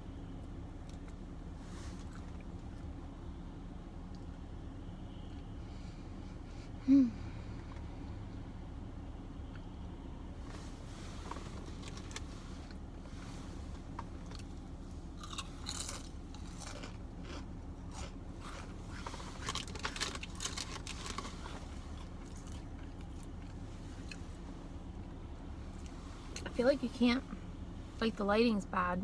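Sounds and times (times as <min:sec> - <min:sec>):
steady low hum: 0:00.0 - 0:29.0
chewing a sandwich: 0:14.2 - 0:24.3.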